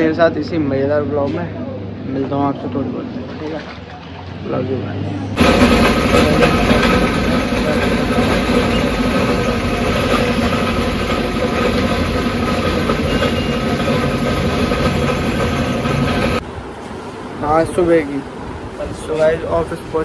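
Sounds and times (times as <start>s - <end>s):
machinery drone with humming tones: 5.4s - 16.4s.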